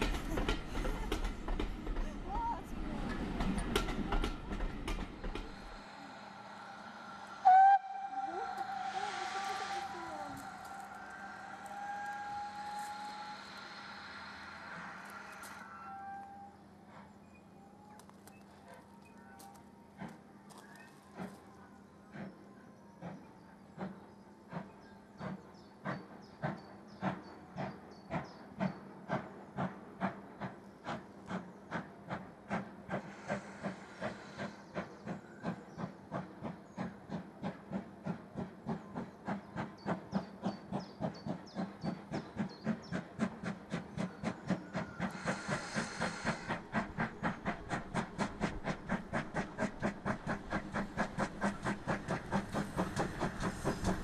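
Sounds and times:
steam locomotive chuffing: 0.0 - 17.9, 22.1 - 54.0
steam hiss: 3.0 - 17.0, 28.7 - 54.0.

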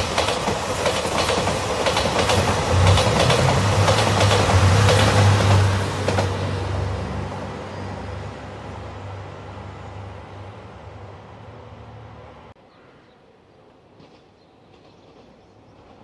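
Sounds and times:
train wheels clacking over rail joints: 0.0 - 6.5
diesel train engine hum: 0.0 - 12.6.

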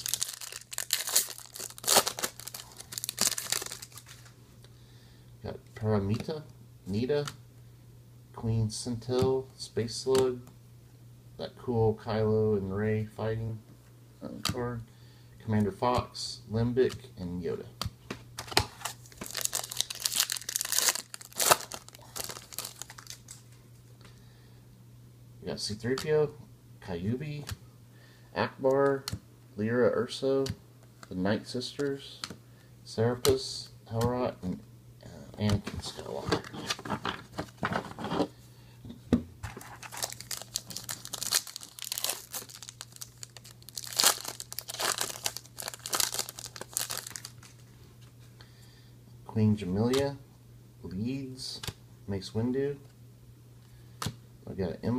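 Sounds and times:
foil pack crinkling and tearing: 0.0 - 4.4, 18.6 - 23.4, 39.5 - 47.6.

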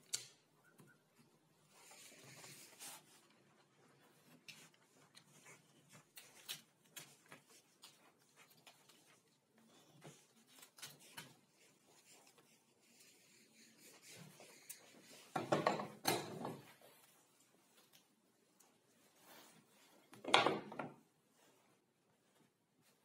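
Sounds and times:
paper rustling: 1.7 - 15.2.

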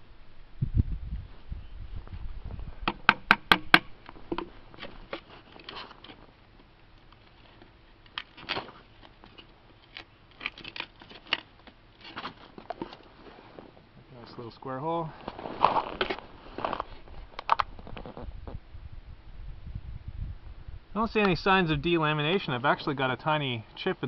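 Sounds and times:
sharp knocks of knife on wood: 2.9 - 3.9
wood cutting and cracking: 8.1 - 12.5.

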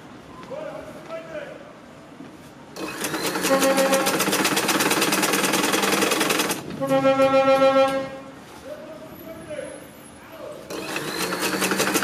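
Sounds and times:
sewing machine stitching: 2.8 - 6.6, 10.7 - 12.0.

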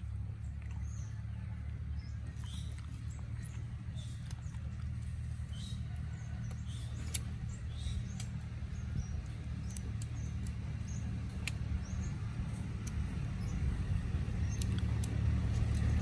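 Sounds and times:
steady low hum: 0.0 - 16.0
fruit shell cracking: 9.2 - 16.0.

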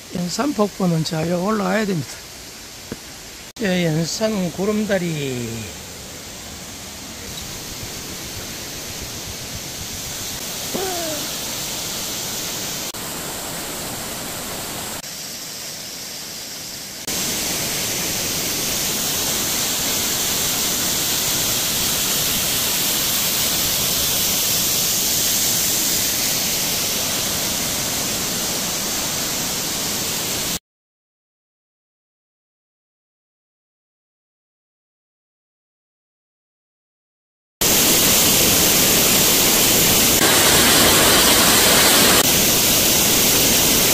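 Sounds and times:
waterfall rushing over rock: 0.1 - 30.6, 37.6 - 43.9
short falling call: 10.7 - 11.4.

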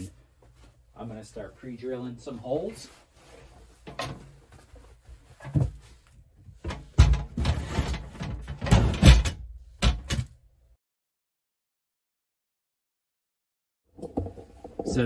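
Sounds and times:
metal safe knocking and clunking: 6.6 - 10.3.

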